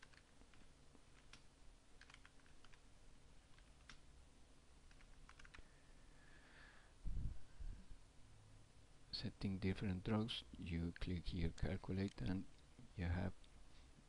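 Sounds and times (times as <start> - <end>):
keyboard keystrokes: 0.0 - 0.6, 2.0 - 2.8, 4.9 - 5.6.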